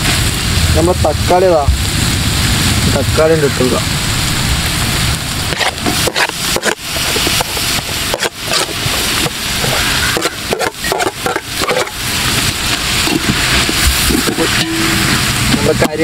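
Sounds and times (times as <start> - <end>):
onions sizzling in oil: 0.0 - 16.0
clicks and scrapes on pot: 5.5 - 8.8, 9.6 - 12.0.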